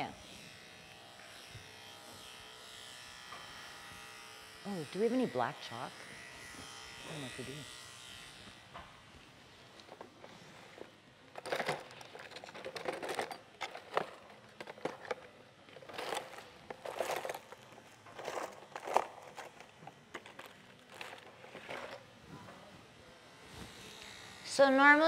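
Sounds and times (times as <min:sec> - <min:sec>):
rustling and handling noises: 0:09.6 - 0:22.7.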